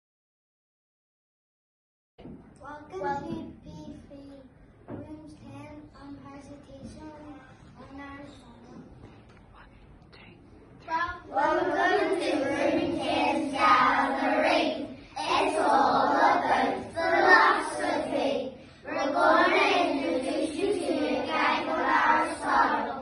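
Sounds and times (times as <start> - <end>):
boys singing in unison: 11.3 - 23.0.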